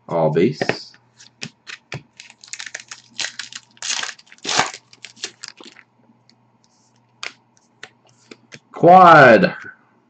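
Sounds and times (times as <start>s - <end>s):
cards slapping on a table: 0.6s - 2.1s
foil pack crinkling: 1.4s - 5.9s.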